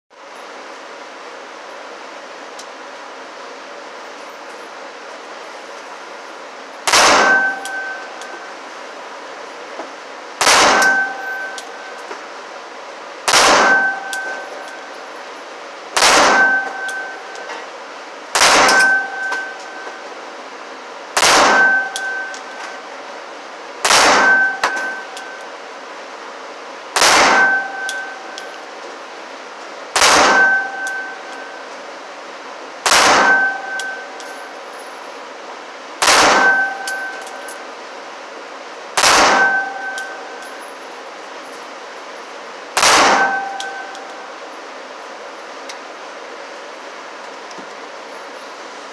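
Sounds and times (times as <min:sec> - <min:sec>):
short ringing tone: 0:07.2 - 0:08.7, 0:10.7 - 0:12.1, 0:13.6 - 0:15.2, 0:16.3 - 0:17.6, 0:18.7 - 0:20.2, 0:21.5 - 0:23.0, 0:24.2 - 0:25.6, 0:27.3 - 0:28.7, 0:30.3 - 0:31.7, 0:33.2 - 0:35.1, 0:36.4 - 0:37.7, 0:39.3 - 0:41.0, 0:43.1 - 0:44.3
pistol shots echoing indoors: 0:10.4 - 0:11.1, 0:18.4 - 0:19.4, 0:21.2 - 0:22.1, 0:36.0 - 0:37.2, 0:39.0 - 0:40.1, 0:42.8 - 0:43.9.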